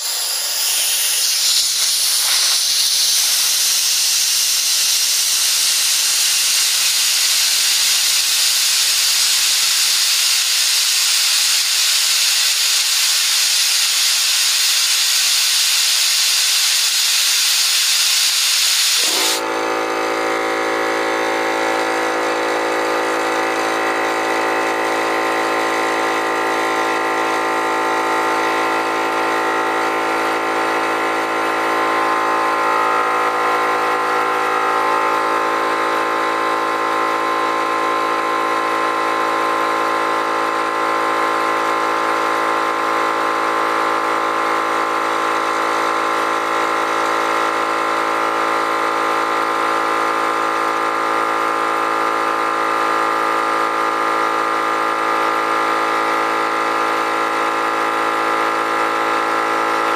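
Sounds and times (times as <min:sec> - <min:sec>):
compressed air hissing: 0:00.0 - 0:19.5
air compressor motor humming: 0:00.0 - 0:59.9.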